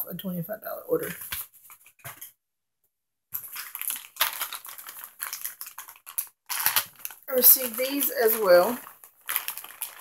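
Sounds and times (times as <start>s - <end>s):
packaging clicks taps and rustles: 3.4s - 10.0s.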